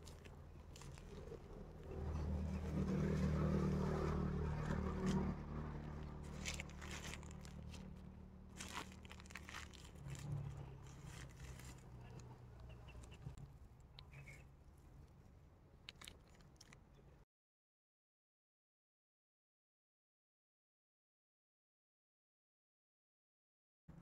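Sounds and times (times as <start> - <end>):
plastic wrap crinkling: 0.0 - 1.8, 5.0 - 12.3, 15.9 - 16.8.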